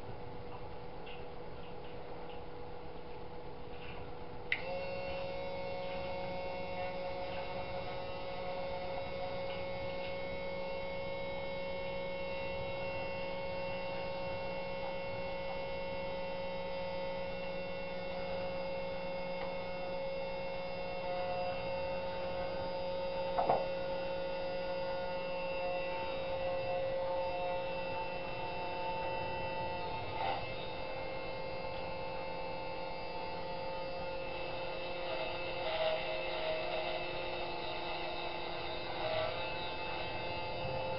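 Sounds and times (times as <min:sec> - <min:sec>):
milling machine motor humming: 0:01.7 - 0:40.9.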